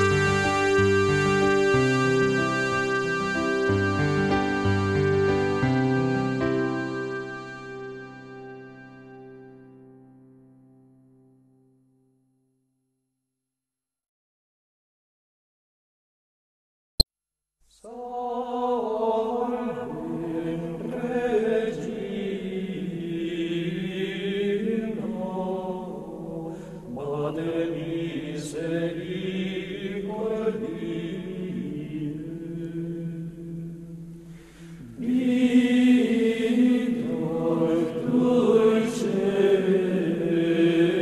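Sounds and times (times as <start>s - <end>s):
low voices chanting: 34.8s - 41.0s.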